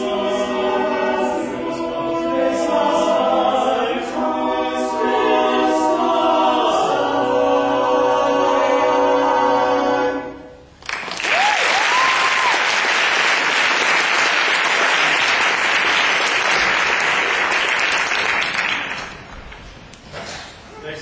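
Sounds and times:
male choir singing: 0:00.0 - 0:10.5
audience applauding: 0:10.8 - 0:19.4.

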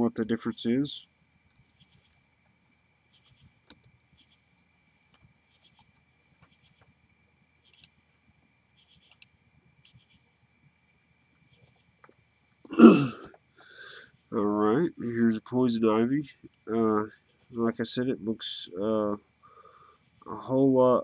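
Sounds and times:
faint high-pitched whine: 0:00.0 - 0:21.0
keyboard and mouse clicks: 0:07.6 - 0:08.0.

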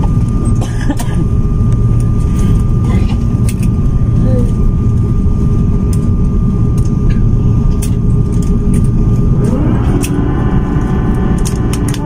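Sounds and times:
low cabin rumble: 0:00.0 - 0:12.0
thin steady whine: 0:00.0 - 0:12.0
jet engine whine sliding up: 0:08.5 - 0:12.0.

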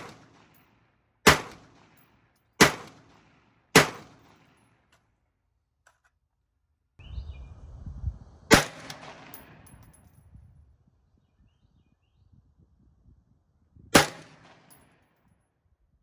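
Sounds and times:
rifle shot with echo: 0:00.0 - 0:04.6, 0:08.5 - 0:09.7, 0:14.0 - 0:14.9.

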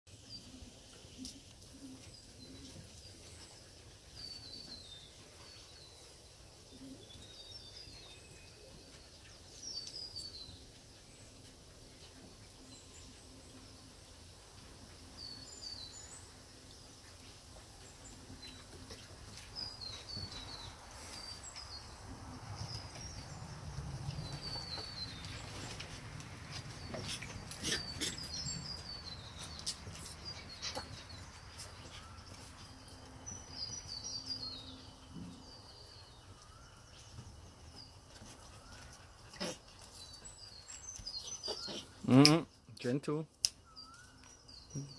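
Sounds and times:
small birds chirping: 0:00.1 - 0:44.9
puppies scrambling on wooden deck: 0:22.2 - 0:33.6.

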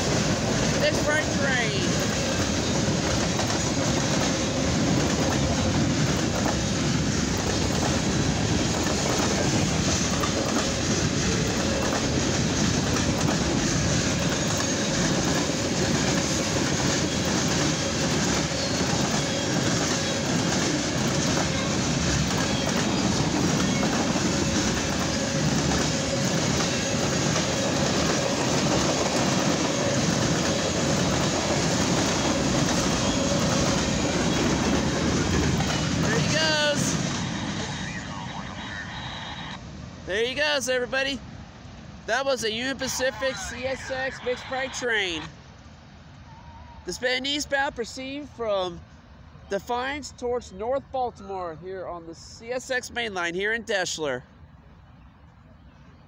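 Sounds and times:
train wheels clattering over rails: 0:00.0 - 0:37.6.

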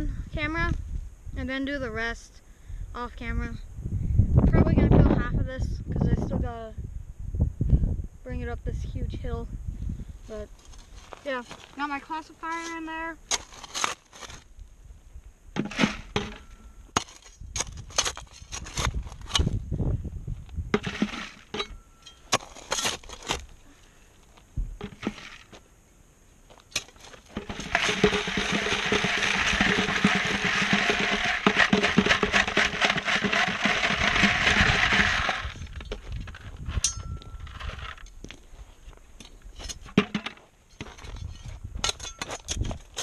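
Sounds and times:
shovel scraping in gravel: 0:12.4 - 0:14.5, 0:15.6 - 0:19.6, 0:20.8 - 0:23.6, 0:24.8 - 0:25.6, 0:26.6 - 0:38.2
gravel rattling on a screen: 0:24.8 - 0:25.6, 0:26.8 - 0:38.2.

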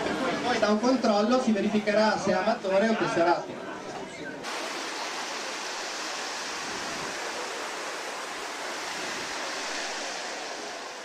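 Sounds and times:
small waves breaking on beach: 0:04.4 - 0:11.0.

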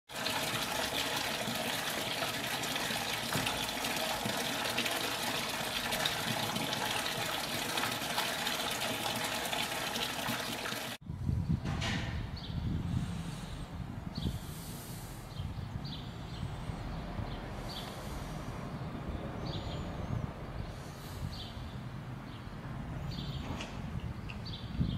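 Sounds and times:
fountain water splashing: 0:00.1 - 0:11.0.

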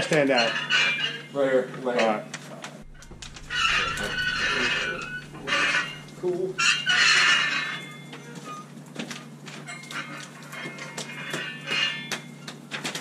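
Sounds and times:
roller squeaking over plastic sleeve: 0:02.8 - 0:13.0.

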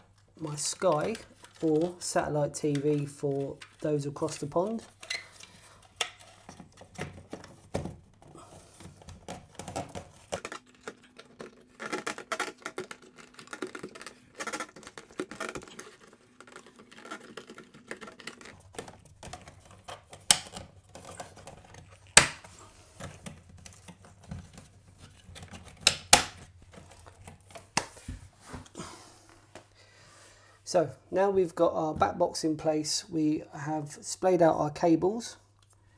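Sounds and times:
sharp plastic snaps: 0:16.4 - 0:21.5, 0:22.1 - 0:22.5, 0:25.4 - 0:26.5.

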